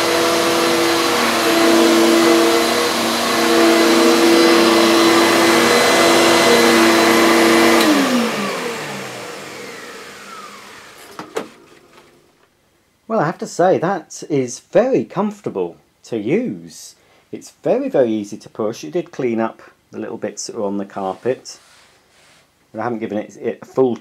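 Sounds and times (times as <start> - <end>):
vacuum motor winding down: 0.0 - 12.2
upright vacuum cleaner running: 0.0 - 12.4.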